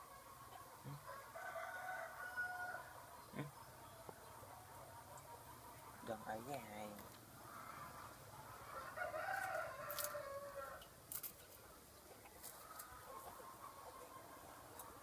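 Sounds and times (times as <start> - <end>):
rooster crowing: 1.0 - 2.9, 8.6 - 10.8.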